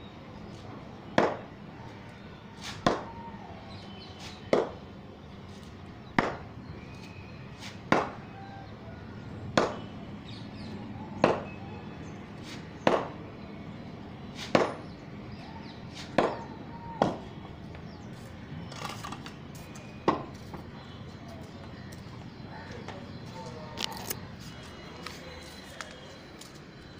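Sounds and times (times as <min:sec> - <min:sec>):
cricket bat hitting ball: 0:01.2 - 0:01.5, 0:02.8 - 0:03.1, 0:04.5 - 0:04.8, 0:06.2 - 0:06.4, 0:07.9 - 0:08.3, 0:09.5 - 0:09.9, 0:11.2 - 0:11.6, 0:12.8 - 0:13.2, 0:14.5 - 0:14.9, 0:16.1 - 0:16.4, 0:17.0 - 0:17.2, 0:20.1 - 0:20.3.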